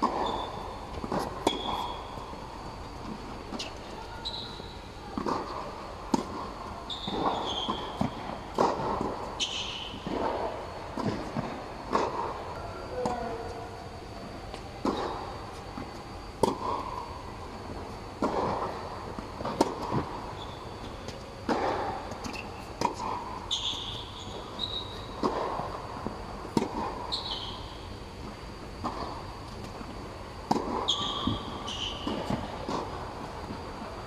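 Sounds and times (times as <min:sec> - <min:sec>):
shoe squeaks: 0:00.2 - 0:00.6, 0:01.5 - 0:02.2, 0:03.6 - 0:04.8, 0:06.9 - 0:08.1, 0:20.4 - 0:21.0, 0:23.5 - 0:25.2, 0:27.1 - 0:27.7, 0:30.9 - 0:32.1.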